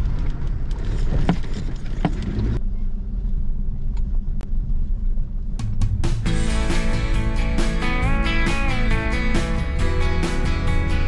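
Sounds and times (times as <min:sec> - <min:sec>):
knocks and rattles over bumps: 0:00.0 - 0:02.6
engine and tyres rumbling: 0:00.0 - 0:11.0.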